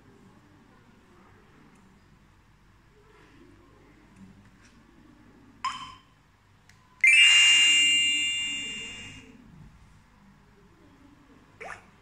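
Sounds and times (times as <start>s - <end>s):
short beep: 7.0s - 9.2s
steady electronic tone: 7.0s - 9.2s.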